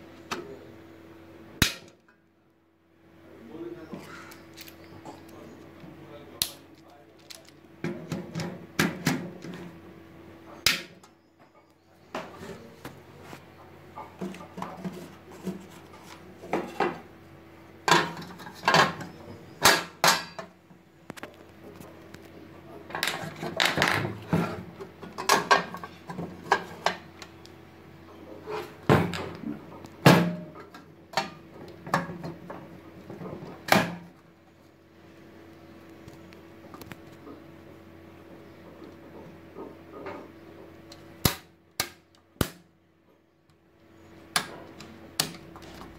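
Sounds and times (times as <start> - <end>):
clicks and knocks of metal enclosure: 22.9 - 27.0.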